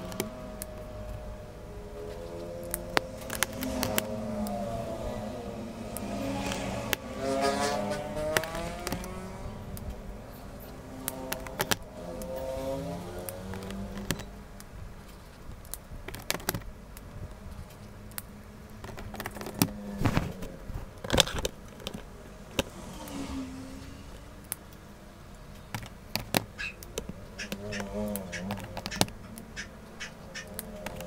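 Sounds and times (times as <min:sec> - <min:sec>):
plastic markers clicking: 0:08.3 - 0:09.1, 0:11.0 - 0:12.3, 0:13.2 - 0:14.3, 0:15.0 - 0:19.8, 0:25.5 - 0:31.0.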